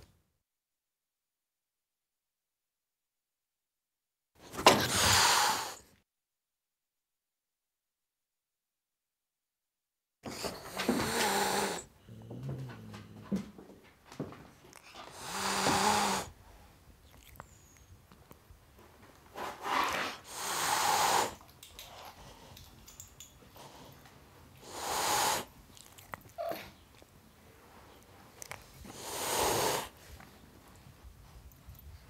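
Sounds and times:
cat hissing: 4.5s - 5.9s, 10.3s - 11.9s, 14.8s - 16.4s, 19.3s - 21.5s, 24.6s - 26.8s, 28.8s - 30.1s.

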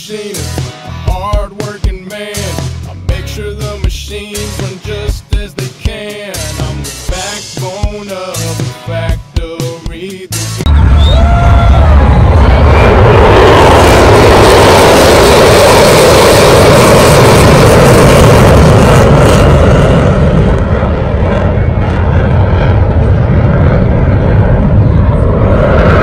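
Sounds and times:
jet engine roaring: 10.6s - 26.0s.

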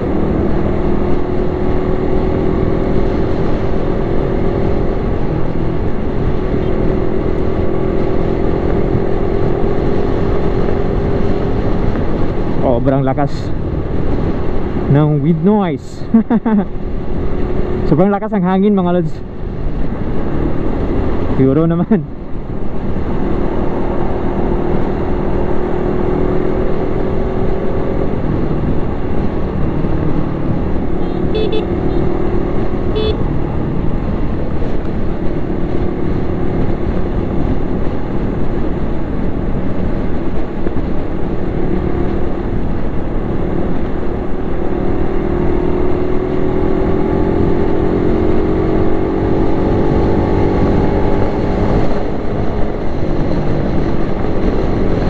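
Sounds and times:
wind buffeting microphone: 22.0s - 55.0s
motorcycle engine running: 26.2s - 55.0s.

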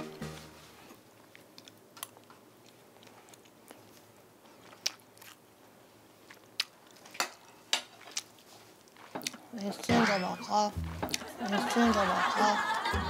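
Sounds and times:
quiet chewing: 0.9s - 9.8s, 10.8s - 11.3s.

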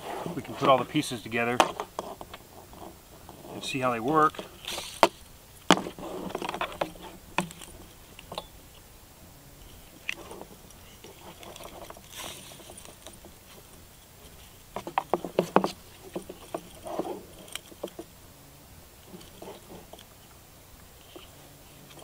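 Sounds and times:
leather rubbing: 0.0s - 8.3s, 9.9s - 18.2s, 19.0s - 20.0s
metal buckle clicking and rattling: 14.2s - 18.1s.

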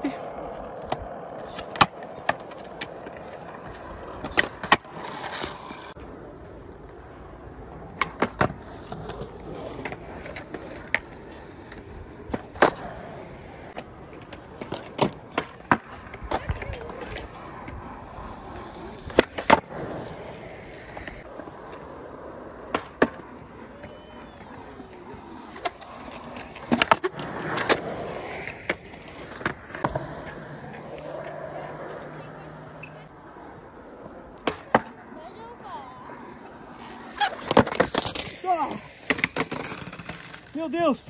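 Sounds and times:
skateboards rolling on concrete: 0.0s - 41.0s
skateboard clacks on concrete: 0.7s - 6.0s, 7.8s - 13.0s, 13.6s - 19.9s, 34.4s - 40.5s.

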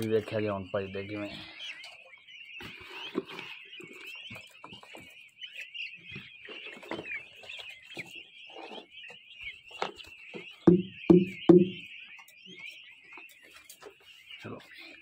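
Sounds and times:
chicks peeping: 0.0s - 15.0s
soft knocks: 10.7s - 11.9s.

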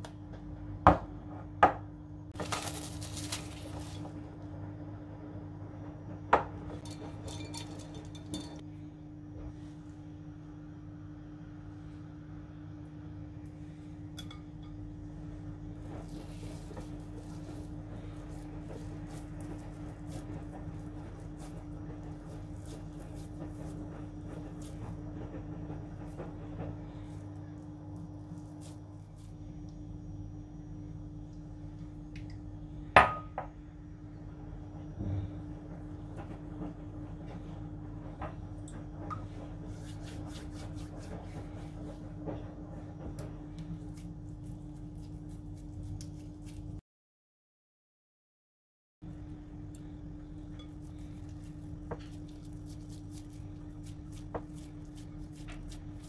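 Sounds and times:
steady low hum: 0.0s - 46.8s, 49.0s - 56.0s
hands squishing and patting meat: 43.6s - 46.8s, 50.8s - 56.0s.

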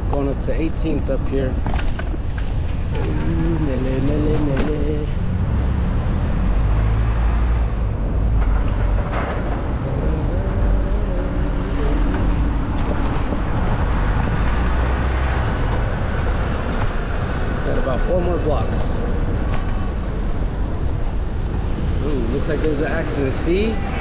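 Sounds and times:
wind rumble on microphone: 0.0s - 23.0s
city street traffic: 0.0s - 24.0s.

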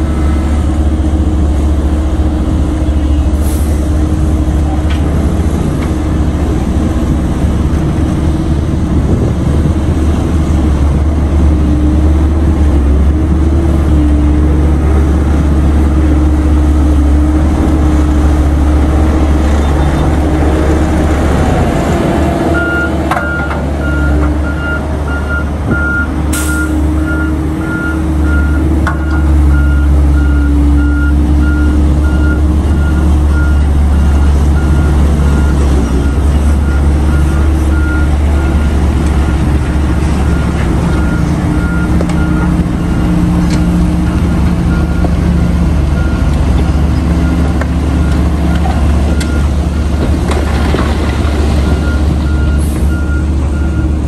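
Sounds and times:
heavy diesel engines rumbling: 0.0s - 54.0s
reversing alarm beeping: 51.6s - 54.0s.

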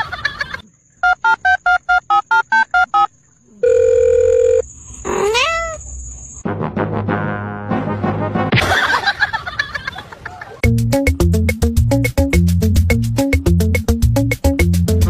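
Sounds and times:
steady phone tone: 1.0s - 4.6s
phone keypad dialling tones: 1.1s - 4.6s.

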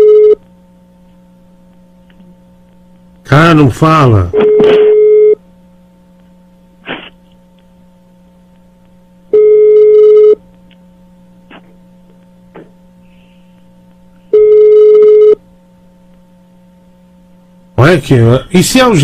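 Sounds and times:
low line hum: 0.0s - 19.0s
telephone ringback beeps: 4.4s - 5.4s, 9.4s - 10.4s, 14.4s - 15.4s.

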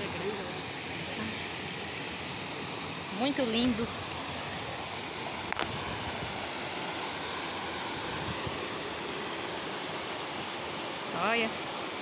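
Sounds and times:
water cascading down rocks: 0.0s - 12.0s.

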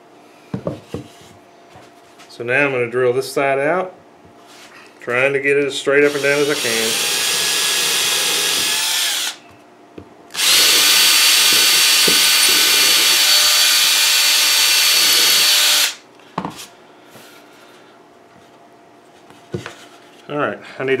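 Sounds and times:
cordless drill whining: 6.1s - 9.4s, 10.3s - 16.0s.

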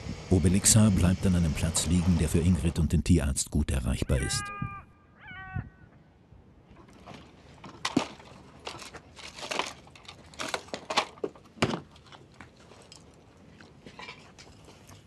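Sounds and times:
high-pitched animal call: 4.0s - 6.0s
small items rattling: 7.7s - 12.2s
packets rustling and crinkling: 7.9s - 11.4s.

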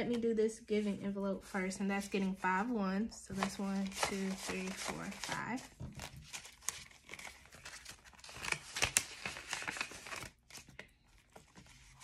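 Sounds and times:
paper banknotes rustling: 3.3s - 12.0s.

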